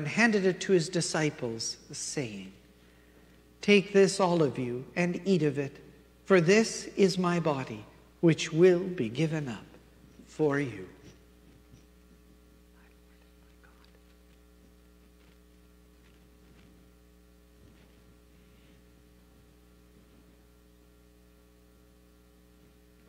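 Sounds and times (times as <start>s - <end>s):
electrical mains hum: 0.0s - 23.0s
faint clicks and rustles: 11.0s - 20.4s.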